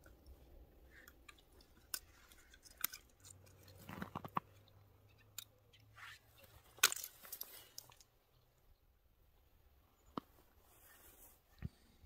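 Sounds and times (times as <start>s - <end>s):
crackles and crunches on ice: 0.1s - 8.1s.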